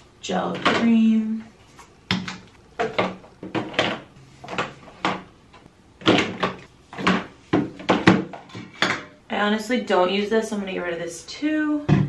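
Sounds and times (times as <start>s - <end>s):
plastic bottles knocking: 2.1s - 5.3s, 6.0s - 9.1s.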